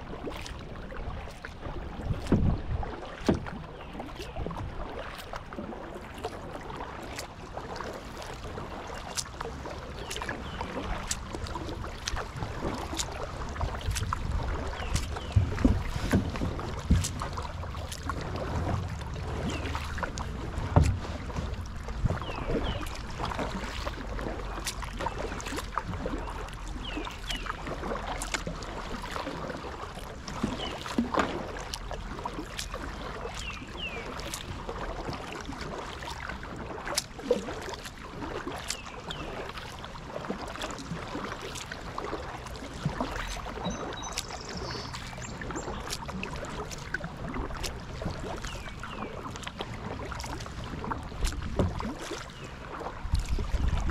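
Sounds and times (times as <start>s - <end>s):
paddle splashing in water: 0.0s - 53.9s
kayak knocks: 2.0s - 5.2s, 10.1s - 26.6s, 27.8s - 34.4s, 44.9s - 53.9s.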